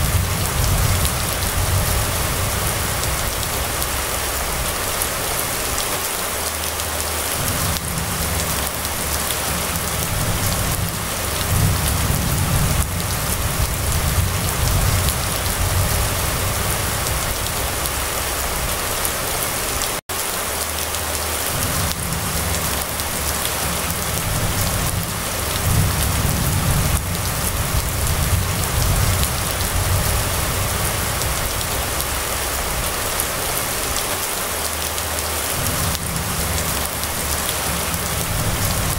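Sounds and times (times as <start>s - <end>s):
low rumble: 0.0s - 5.6s, 7.3s - 19.0s, 21.5s - 33.8s
rain falling on wet street: 0.0s - 38.9s.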